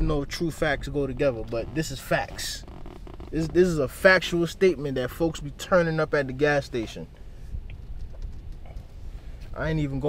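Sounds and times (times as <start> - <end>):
car rolling rumble from inside: 0.0 - 10.0.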